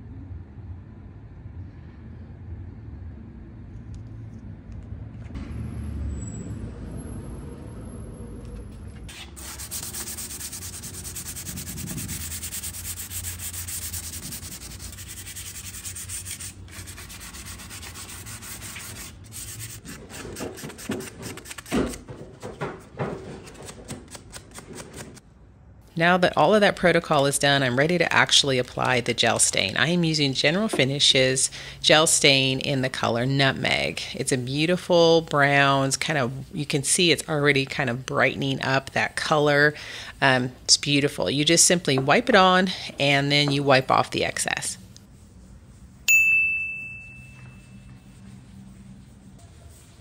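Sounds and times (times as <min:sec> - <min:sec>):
low rumble: 0:00.1 - 0:09.1
sanding sponge rubbing wood: 0:09.4 - 0:21.7, 0:48.1 - 0:50.0.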